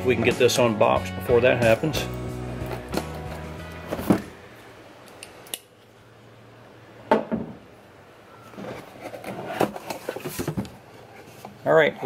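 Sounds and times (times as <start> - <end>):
cardboard scraping and rustling: 2.5 - 4.4, 8.6 - 11.6.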